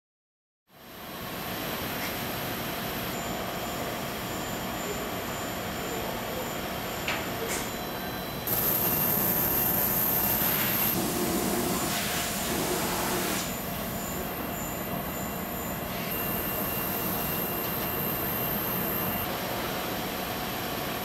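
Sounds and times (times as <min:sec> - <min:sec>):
thin high-pitched whine: 0:04.3 - 0:11.0, 0:13.5 - 0:19.3
parts-washing tank mechanical noise: 0:06.4 - 0:21.0.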